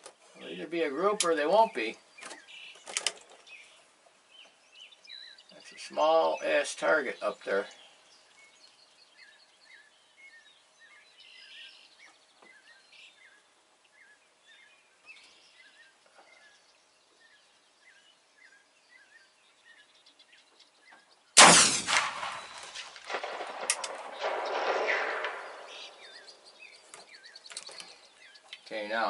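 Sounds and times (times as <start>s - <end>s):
bird chirping: 0.0s - 29.0s
rifle shot with echo: 21.4s - 26.8s.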